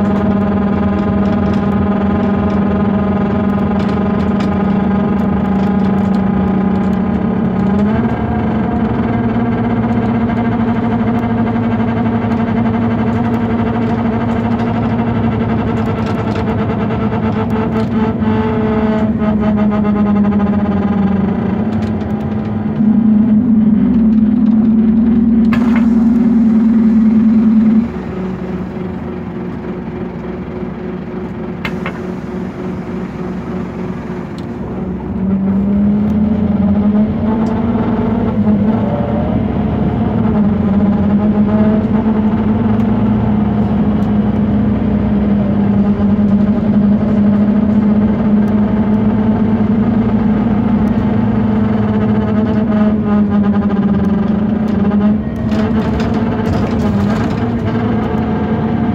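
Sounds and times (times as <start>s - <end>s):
bus droning hum: 0.0s - 58.9s.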